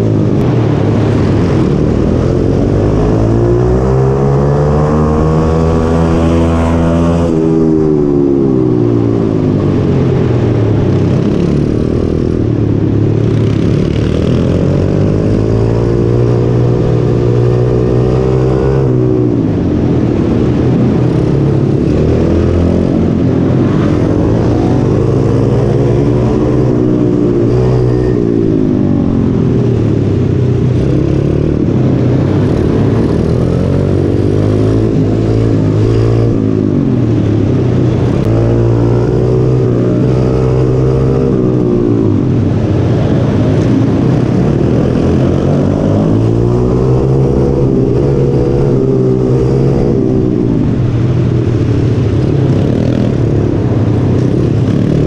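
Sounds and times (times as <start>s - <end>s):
motorbike engine revving: 0.0s - 55.0s.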